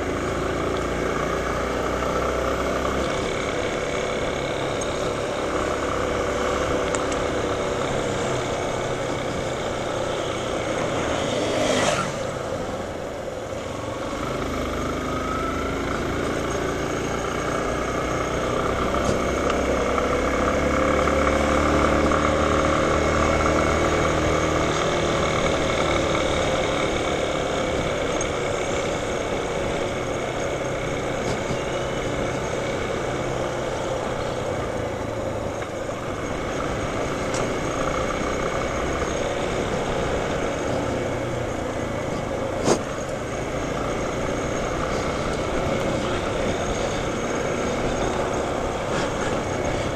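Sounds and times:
motorcycle engine running: 0:00.0 - 0:49.9.

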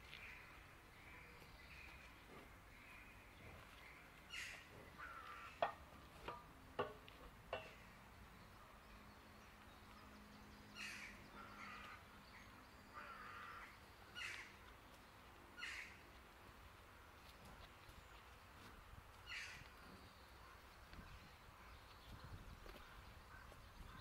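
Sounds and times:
faint crows cawing: 0:00.1 - 0:02.0, 0:02.7 - 0:05.9, 0:10.8 - 0:14.7, 0:15.6 - 0:16.1, 0:19.2 - 0:19.8, 0:22.7 - 0:24.0
sharp knocks: 0:05.6 - 0:07.8.

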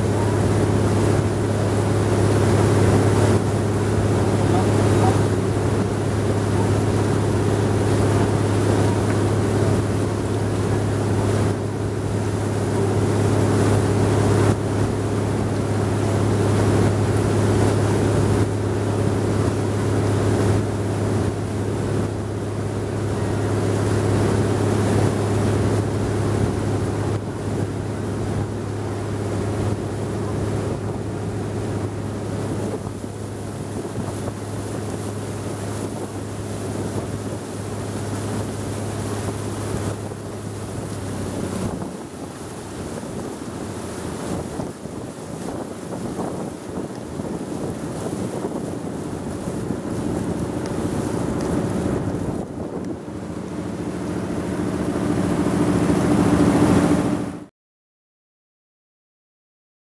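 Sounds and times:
boat engine running: 0:00.0 - 0:57.5
water rushing: 0:00.0 - 0:57.5
wind: 0:00.0 - 0:57.5.

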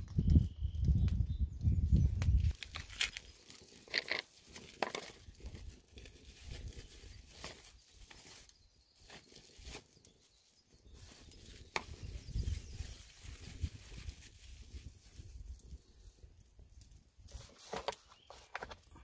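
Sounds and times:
plastic wrapping crinkling and tearing: 0:02.2 - 0:15.8.

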